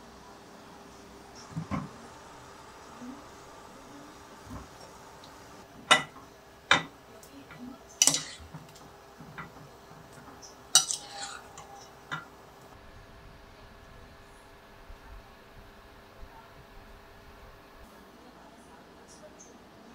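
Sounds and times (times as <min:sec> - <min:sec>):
metal ladle clinking on glass: 0:08.0 - 0:08.4, 0:10.8 - 0:12.2.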